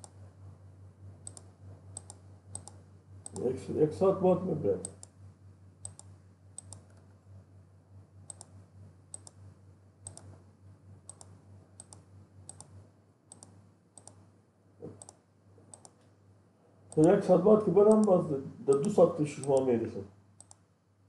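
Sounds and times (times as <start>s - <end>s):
faint low hum: 0.0s - 21.0s
computer mouse clicking: 1.2s - 3.5s, 4.8s - 5.2s, 5.8s - 7.1s, 8.2s - 9.4s, 10.0s - 10.4s, 11.1s - 14.2s, 14.8s - 16.1s, 16.9s - 17.2s, 17.9s - 19.7s, 20.4s - 20.6s.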